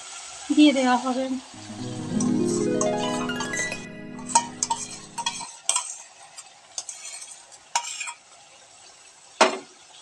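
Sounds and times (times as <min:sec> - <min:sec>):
faint sizzle in hot oil: 0:00.0 - 0:02.6, 0:04.3 - 0:10.0
background music: 0:01.6 - 0:05.4
spoon scraping and knocking metal pan: 0:03.5 - 0:06.1, 0:06.8 - 0:08.2.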